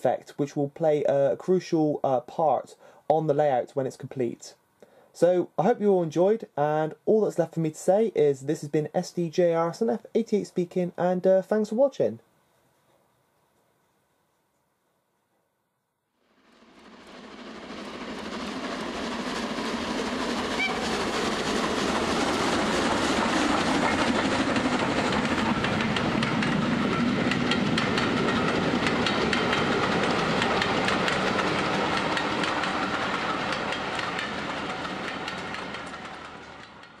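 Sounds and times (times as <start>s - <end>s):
train wheels clicking on rails: 17.0s - 37.0s.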